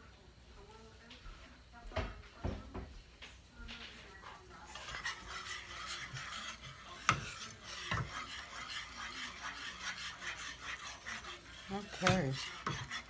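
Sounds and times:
whisk scraping a saucepan: 0:03.7 - 0:13.0.

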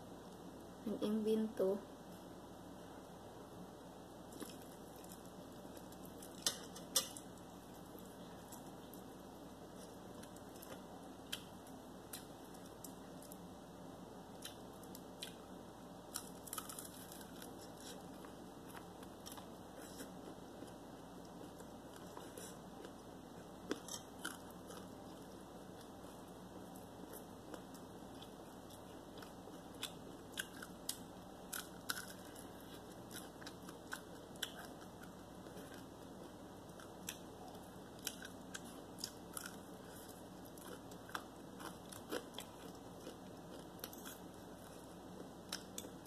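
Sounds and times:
person chewing crunchy food: 0:16.1 - 0:46.0.

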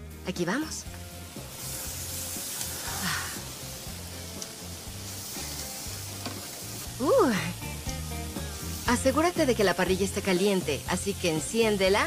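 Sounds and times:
chicken sizzling on grill: 0:00.4 - 0:12.0
background music with low beat: 0:00.8 - 0:10.0.

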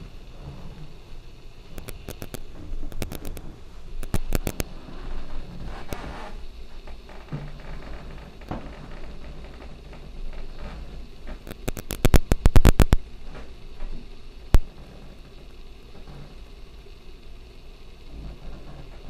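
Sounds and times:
sharp clicks and knocks: 0:01.8 - 0:04.7, 0:06.9 - 0:13.9, 0:14.5 - 0:14.8.

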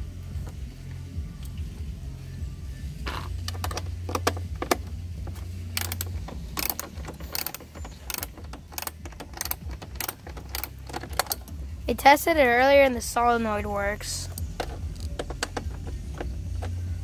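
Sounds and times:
socket ratchet clicking: 0:03.1 - 0:11.7, 0:14.2 - 0:17.0.

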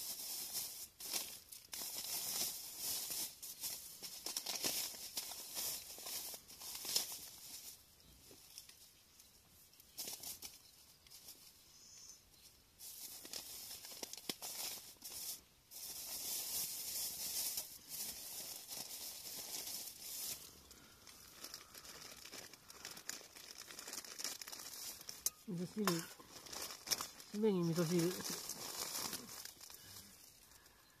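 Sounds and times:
plastic packaging crinkling: 0:00.0 - 0:07.8, 0:12.8 - 0:31.0
plastic tearing: 0:16.1 - 0:30.0.

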